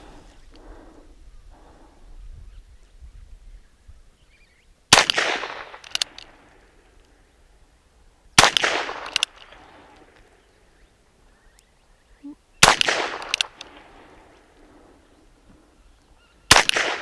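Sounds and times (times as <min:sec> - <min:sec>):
revolver sharp clicks: 0:05.0 - 0:07.2, 0:08.4 - 0:10.4, 0:12.6 - 0:14.0.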